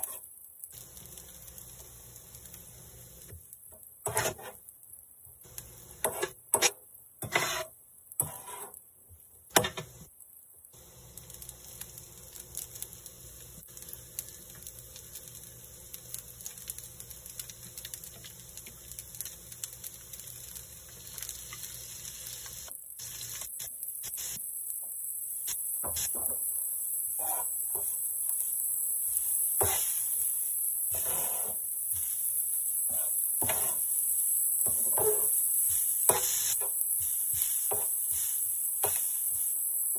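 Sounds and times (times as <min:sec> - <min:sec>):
metal spatula scraping griddle: 0:00.0 - 0:00.3, 0:04.0 - 0:04.6, 0:06.0 - 0:08.8, 0:27.2 - 0:27.9, 0:29.6 - 0:30.0, 0:30.9 - 0:31.6, 0:32.9 - 0:33.9, 0:34.6 - 0:35.4, 0:36.1 - 0:37.9
rice sizzling: 0:00.0 - 0:39.9.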